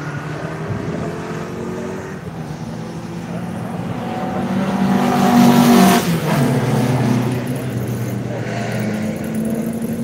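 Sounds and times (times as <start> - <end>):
car engines passing: 0.0 - 10.0.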